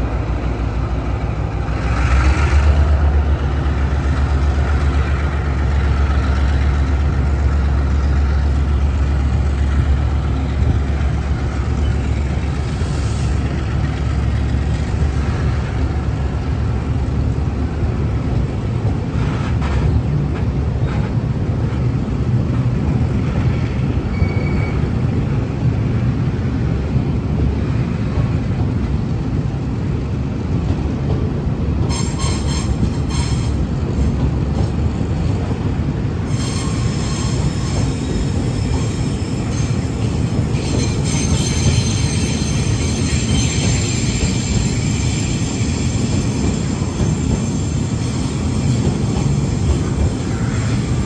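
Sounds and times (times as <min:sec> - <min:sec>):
freight train rumbling: 0:00.0 - 0:51.0
high-pitched wheel squeal: 0:24.1 - 0:24.9, 0:36.3 - 0:48.8.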